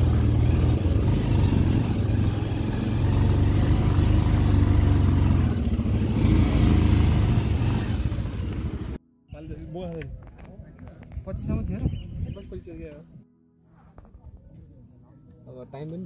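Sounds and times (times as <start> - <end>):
motorcycle engine under load: 0.0 - 9.0.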